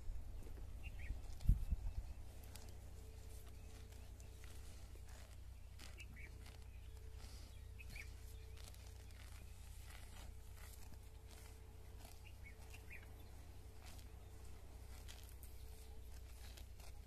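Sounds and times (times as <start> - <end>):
cows tearing grass: 0.0 - 17.0
faint bird chirps: 0.8 - 10.0, 12.2 - 13.4.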